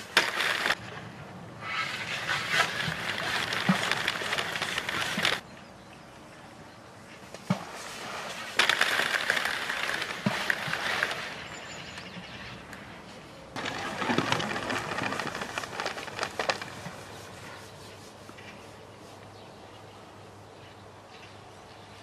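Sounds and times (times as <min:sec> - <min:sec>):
rustling handling noise: 0:01.9 - 0:05.4, 0:13.1 - 0:19.4.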